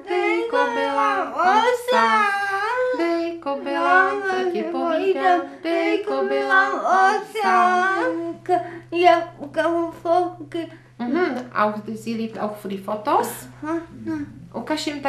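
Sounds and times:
girl singing wordless tune: 0.0 - 11.4.

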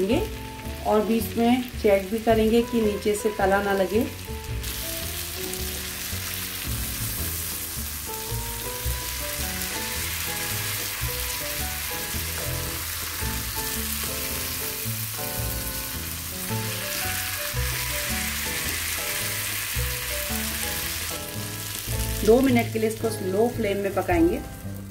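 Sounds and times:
chicken sizzling in oil: 0.0 - 24.9
soft background music: 0.0 - 24.9
spatula turning food: 4.7 - 22.3.

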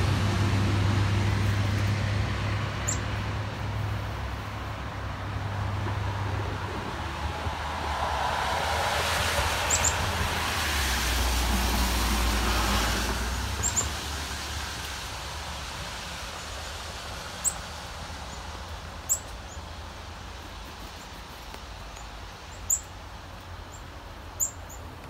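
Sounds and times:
vehicle passing: 0.0 - 25.0
high bird chirps: 9.7 - 10.0, 13.6 - 13.9.

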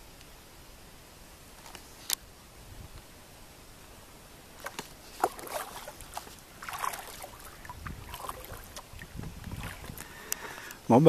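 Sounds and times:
paddle strokes splashing water: 4.6 - 10.8.

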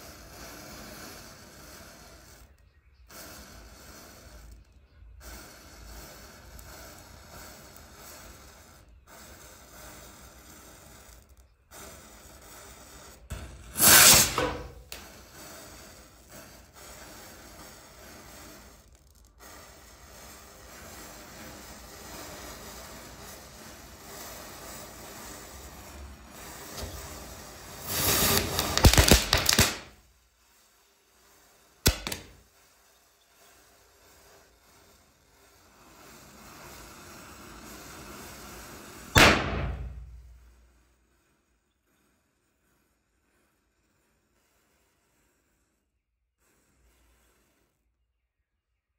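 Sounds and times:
matchsticks burning with crackling hiss: 0.0 - 47.9
firecracker bang: 13.4 - 15.5, 26.4 - 30.0, 31.9 - 32.4, 37.8 - 40.4.

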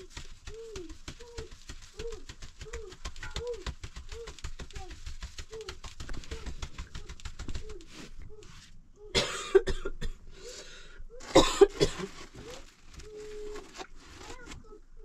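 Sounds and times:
person coughing: 9.1 - 10.2, 11.2 - 12.1.

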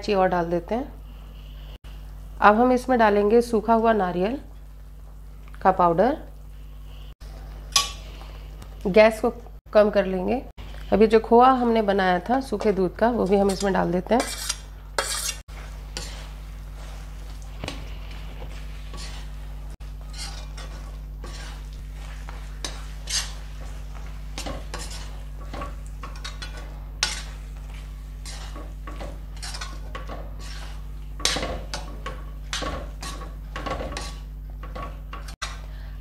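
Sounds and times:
steady low hum: 0.4 - 36.0
metal spatula scraping pan: 13.2 - 15.4, 16.0 - 16.4, 18.5 - 19.4, 20.0 - 34.3.

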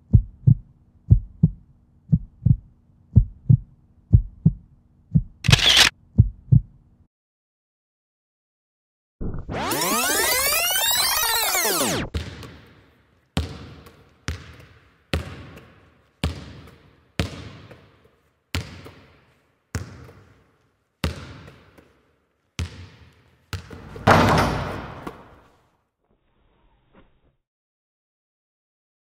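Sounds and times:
basketball bouncing on asphalt: 13.4 - 17.9, 18.5 - 20.3, 22.6 - 23.8.

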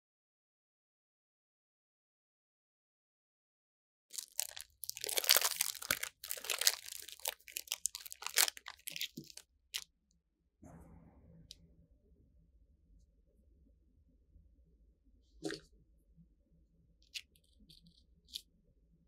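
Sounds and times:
plastic wrapper tearing and crinkling: 4.1 - 9.4.

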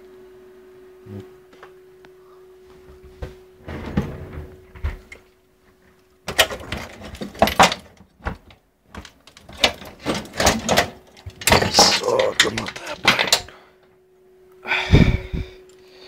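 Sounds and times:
faint steady hum: 0.0 - 16.0
hard objects knocking and clattering: 6.3 - 13.5.

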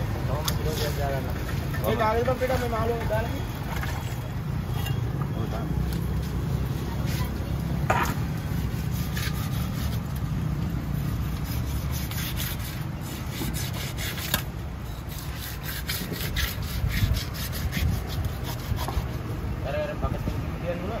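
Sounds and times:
knife scraping fish scales: 6.7 - 10.2, 10.9 - 19.3.

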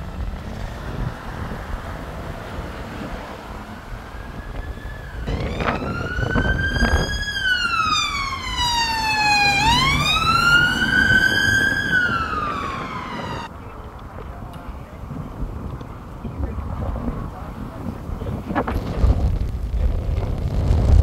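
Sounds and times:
low traffic rumble: 0.0 - 21.0
emergency siren wailing: 2.9 - 13.6.

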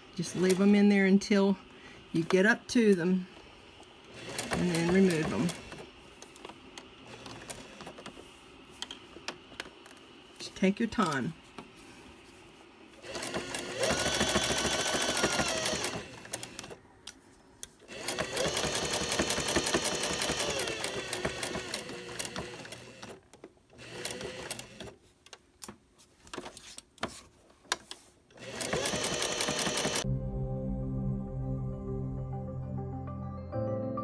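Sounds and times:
sewing machine stitching: 4.1 - 5.9, 13.0 - 16.8, 17.9 - 25.0, 28.4 - 30.0.

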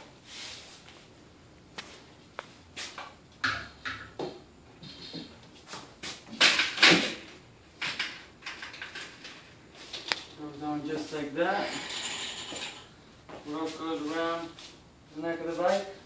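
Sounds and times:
bicycle knocking and rattling: 6.3 - 10.1.

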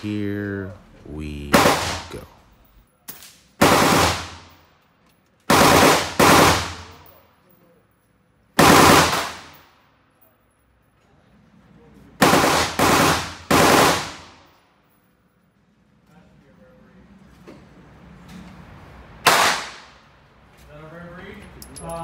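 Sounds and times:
gunshots echoing indoors: 1.4 - 2.4, 3.0 - 4.7, 5.5 - 7.2, 8.6 - 9.8, 12.2 - 14.6, 19.2 - 20.2.

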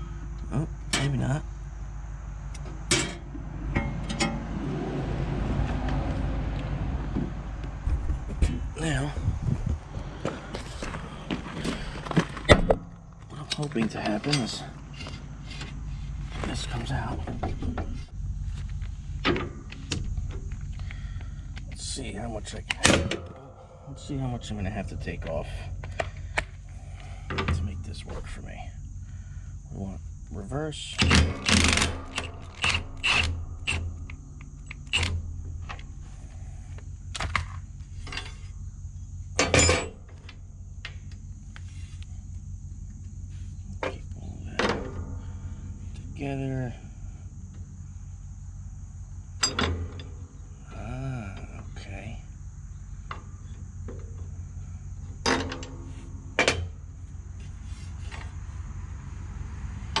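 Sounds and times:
insect drone: 0.0 - 60.0
sharp metal clanks: 2.9 - 4.5, 22.8 - 24.9.

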